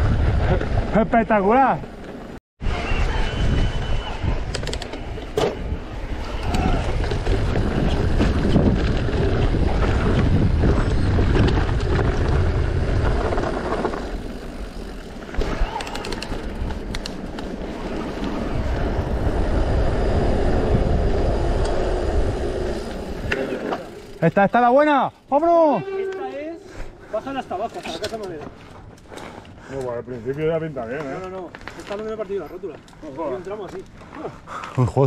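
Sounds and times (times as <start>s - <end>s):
wind buffeting microphone: 2.6s - 23.5s
bike tyres rattling over gravel: 4.9s - 25.7s, 27.1s - 35.0s.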